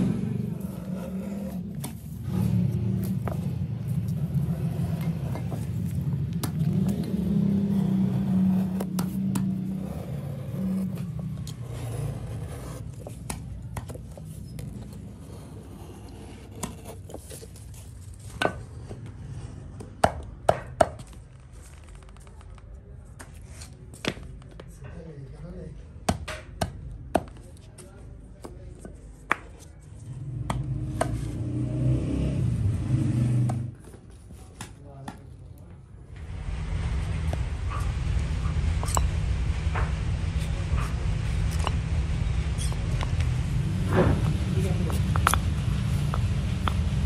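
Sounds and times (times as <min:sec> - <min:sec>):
low rumble: 0:00.0 - 0:13.2, 0:36.0 - 0:47.0
chisel tapping and scraping wood: 0:04.1 - 0:19.2, 0:43.9 - 0:46.9.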